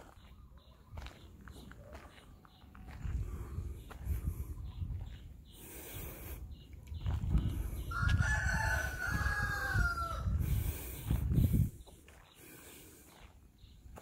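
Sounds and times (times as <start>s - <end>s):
rooster crowing: 7.9s - 10.4s.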